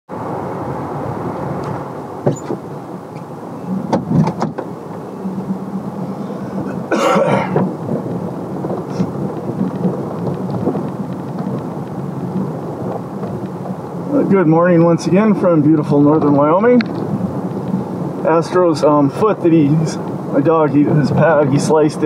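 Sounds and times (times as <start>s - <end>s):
truck engine and tyres rumbling: 0.1s - 22.0s
knocks over ruts: 6.6s - 22.0s.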